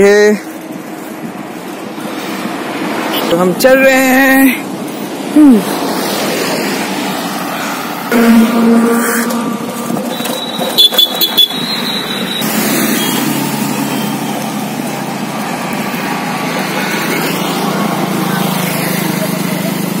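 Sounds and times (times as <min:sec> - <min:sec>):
wind and road noise: 0:00.0 - 0:20.0
short high ringing: 0:08.1 - 0:12.3.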